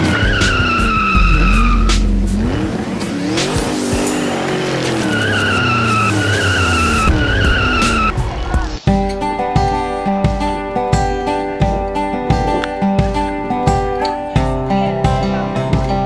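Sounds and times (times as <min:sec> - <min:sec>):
tyres squealing: 0:00.0 - 0:02.1, 0:04.0 - 0:08.1
racing car engine revving: 0:00.0 - 0:08.6.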